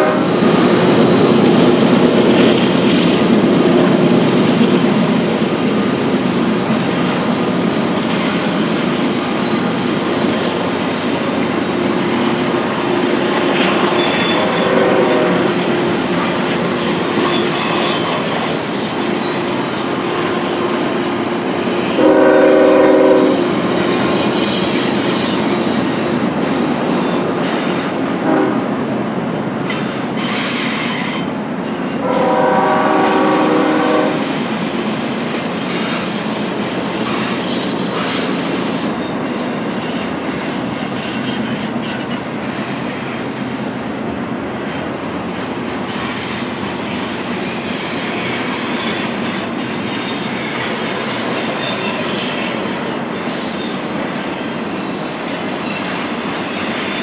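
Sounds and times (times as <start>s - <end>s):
locomotive air horn: 0.0s - 0.4s, 14.1s - 15.8s, 21.9s - 23.6s, 28.2s - 28.7s, 32.0s - 34.3s
freight train wheels squealing: 0.0s - 28.4s, 29.0s - 57.0s.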